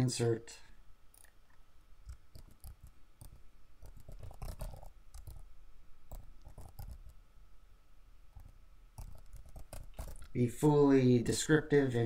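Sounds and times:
mouse clicking: 0:01.1 - 0:05.5, 0:06.1 - 0:07.2, 0:08.3 - 0:10.3
computer keyboard typing: 0:02.0 - 0:05.5, 0:06.1 - 0:07.2, 0:08.4 - 0:10.3.

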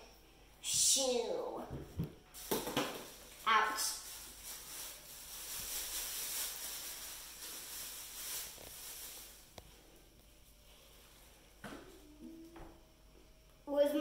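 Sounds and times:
plastic bag rustling: 0:02.3 - 0:09.6.

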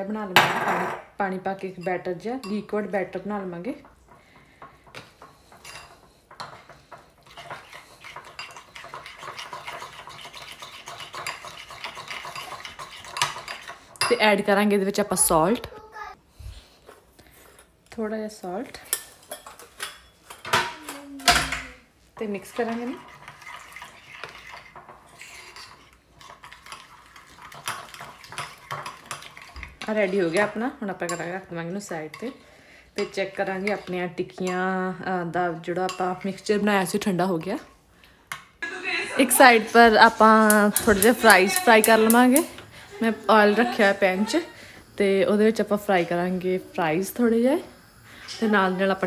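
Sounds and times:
spoon scraping a ceramic bowl: 0:04.1 - 0:14.2, 0:22.4 - 0:31.3.

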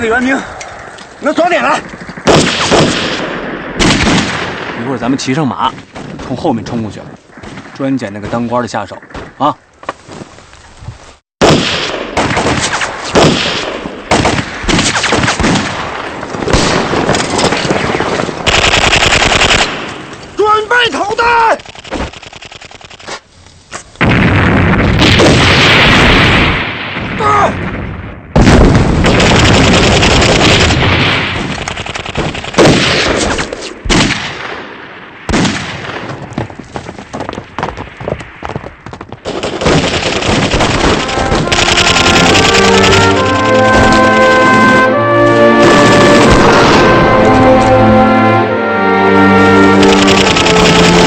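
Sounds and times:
grenade explosion: 0:00.8 - 0:05.3, 0:11.4 - 0:20.0, 0:24.0 - 0:36.5, 0:39.2 - 0:48.4, 0:49.4 - 0:51.0
rapid gunfire: 0:01.6 - 0:04.9, 0:11.4 - 0:15.9, 0:16.5 - 0:19.8, 0:21.5 - 0:23.1, 0:28.4 - 0:34.4, 0:39.2 - 0:47.5, 0:49.6 - 0:51.0.

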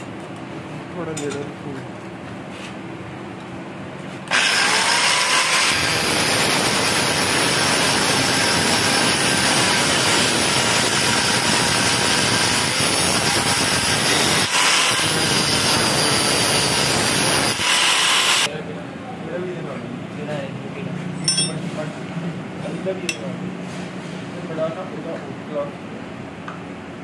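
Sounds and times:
angle grinder cutting steel: 0:04.3 - 0:18.5.

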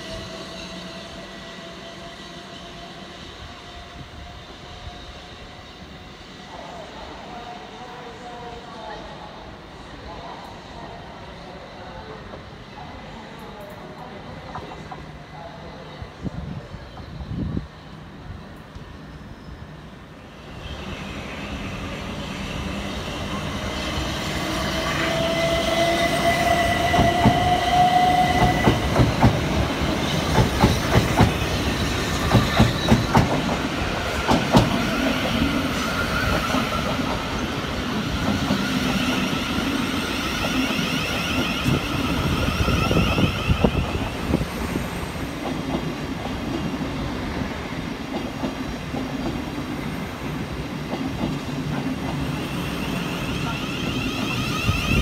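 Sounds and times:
train rumble: 0:22.0 - 0:52.6.

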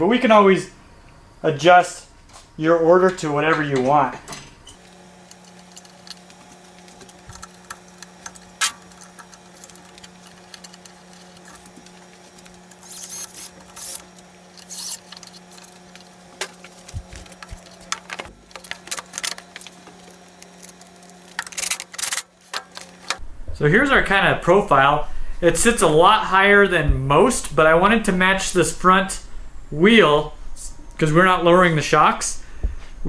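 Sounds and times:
low hum: 0:04.7 - 0:23.5
cordless driver whirring: 0:04.8 - 0:23.2.

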